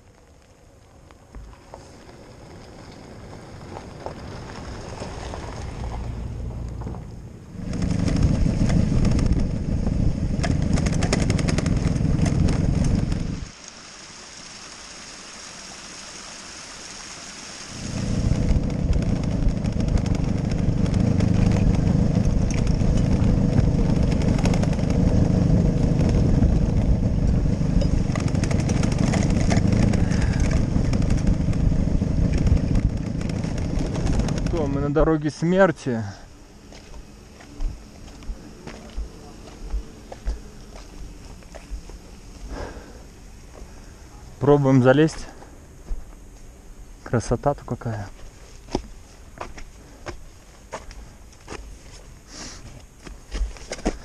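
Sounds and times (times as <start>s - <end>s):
wind rumble on microphone: 1.4s - 13.5s, 17.8s - 35.1s
motorcycle engine running: 3.6s - 13.5s, 17.8s - 35.2s
small waterfall hissing: 12.9s - 18.7s.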